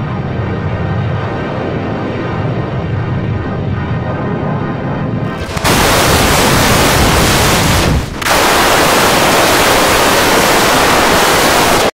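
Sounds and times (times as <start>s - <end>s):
loud harsh static: 5.4s - 11.9s.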